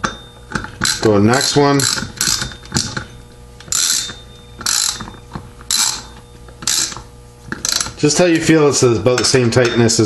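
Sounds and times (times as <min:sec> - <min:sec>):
ratchet wrench clicking: 0:00.5 - 0:03.0, 0:03.7 - 0:07.0, 0:07.6 - 0:08.0.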